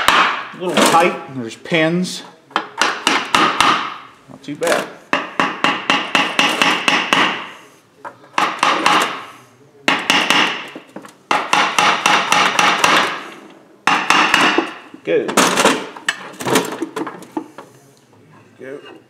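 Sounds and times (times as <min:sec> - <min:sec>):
hammer tapping on metal: 0:02.6 - 0:04.0, 0:05.1 - 0:07.5, 0:08.3 - 0:09.2, 0:09.9 - 0:13.2, 0:13.8 - 0:14.8.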